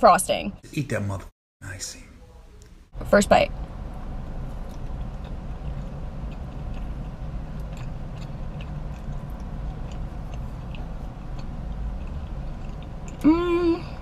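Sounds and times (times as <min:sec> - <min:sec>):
low rumble: 0:02.9 - 0:14.0
person chewing cake: 0:04.5 - 0:13.3.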